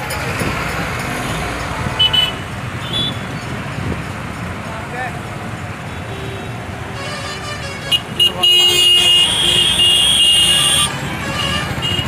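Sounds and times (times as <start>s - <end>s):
vehicle horn toots and blast: 6.2s - 12.0s.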